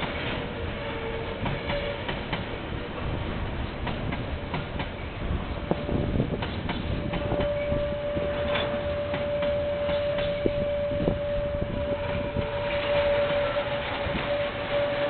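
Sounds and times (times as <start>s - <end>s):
freight train wagons rumbling: 0.0s - 15.0s
steady high squeal: 5.0s - 15.0s.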